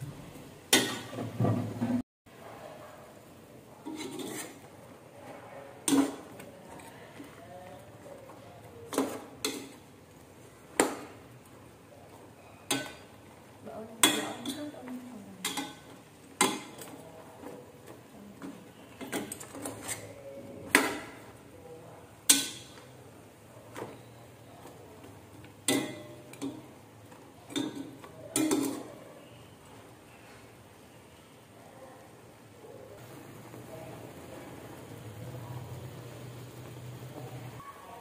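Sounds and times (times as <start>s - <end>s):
metal spoon scraping a pot: 3.8s - 4.7s, 18.9s - 20.3s.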